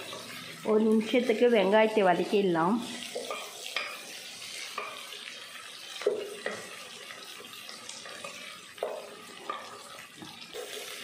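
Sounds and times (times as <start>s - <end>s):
onions frying in hot oil: 0.0s - 11.0s
wooden spoon scraping a pot: 7.6s - 11.0s.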